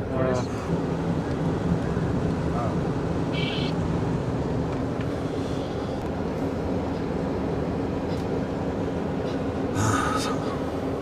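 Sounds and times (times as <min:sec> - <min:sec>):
car engine and tyre noise: 0:00.0 - 0:11.0.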